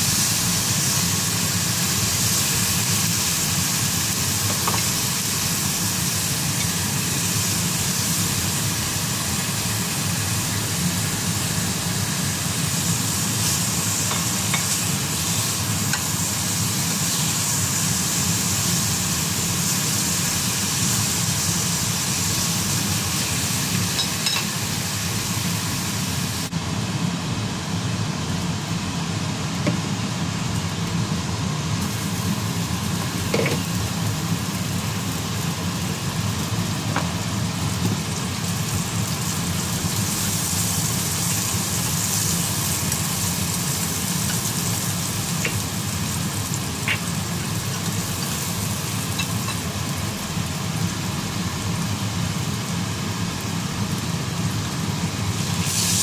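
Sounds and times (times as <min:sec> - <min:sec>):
bacon sizzling in a frying pan: 0:00.0 - 0:56.0.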